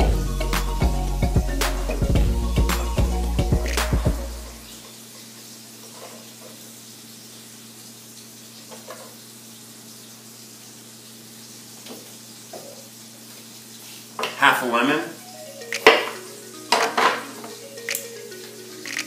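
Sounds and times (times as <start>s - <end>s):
fish sizzling in oil: 4.7s - 14.2s.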